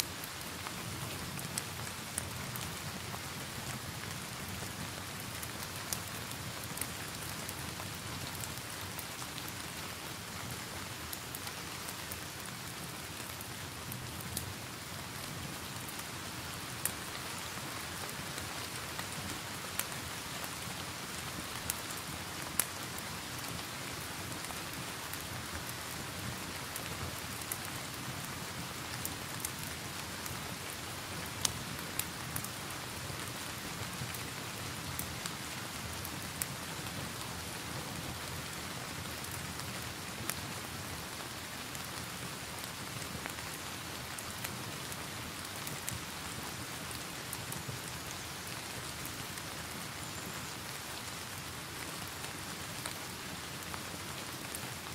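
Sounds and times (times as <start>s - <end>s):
steady rain: 0.0s - 54.9s
log fire crackling and popping: 0.2s - 54.9s.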